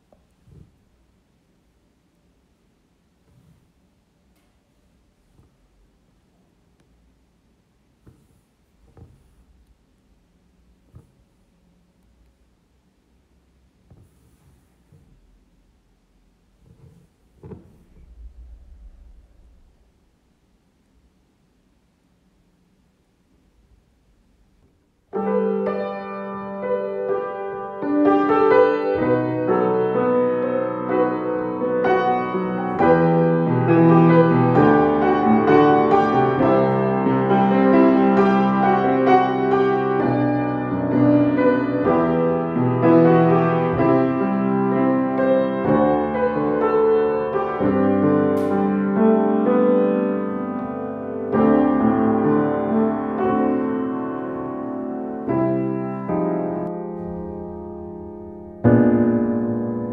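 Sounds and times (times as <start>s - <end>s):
piano music: 25.1s - 59.9s.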